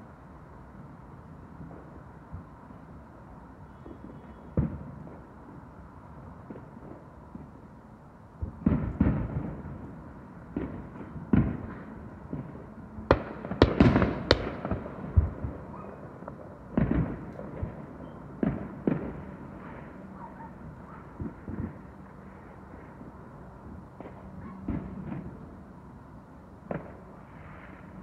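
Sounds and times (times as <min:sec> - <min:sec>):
fireworks bangs and pops: 0:08.4 - 0:09.9, 0:10.5 - 0:20.0, 0:21.2 - 0:22.0, 0:23.9 - 0:25.4, 0:26.6 - 0:28.0.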